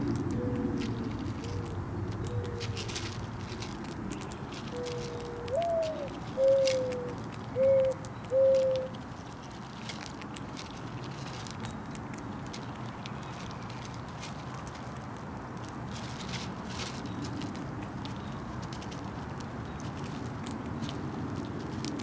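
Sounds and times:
dove cooing: 0:00.1 - 0:03.0, 0:04.7 - 0:09.0.

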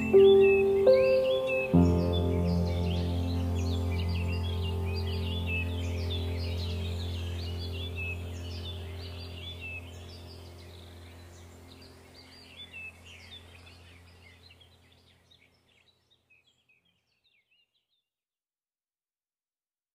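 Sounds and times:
low steady hum: 0:00.0 - 0:15.6
birds chirping: 0:00.0 - 0:18.0.

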